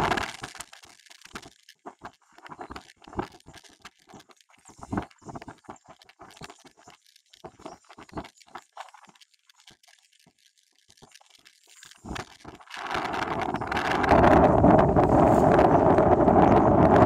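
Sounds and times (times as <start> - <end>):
wind rumbling on microphone: 12.1 - 17.0.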